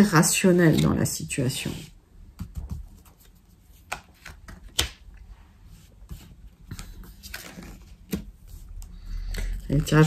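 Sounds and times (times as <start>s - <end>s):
cards tapping and slapping on table: 3.8s - 5.1s.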